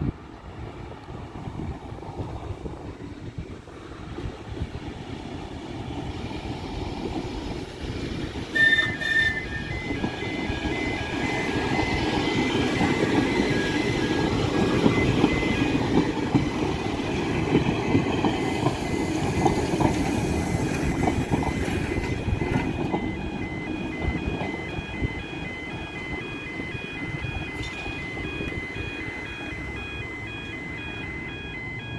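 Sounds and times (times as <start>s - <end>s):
tram rolling past with rumble: 0.0s - 31.9s
level crossing alarm beeping: 8.6s - 31.9s.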